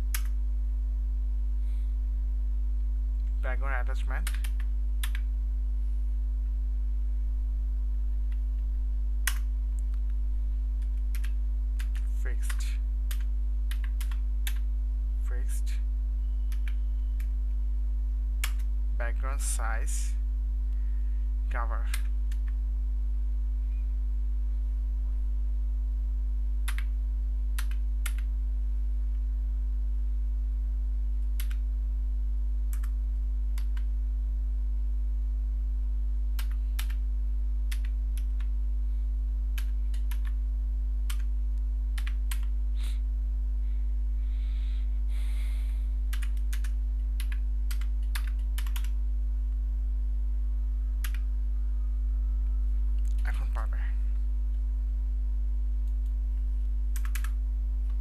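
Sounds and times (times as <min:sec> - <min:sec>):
steady low hum: 0:00.0 - 0:58.0
keyboard keystroke clicks: 0:04.2 - 0:05.2, 0:09.2 - 0:09.5, 0:10.8 - 0:14.6, 0:18.4 - 0:18.7, 0:27.6 - 0:28.3, 0:46.1 - 0:48.9, 0:57.0 - 0:57.3.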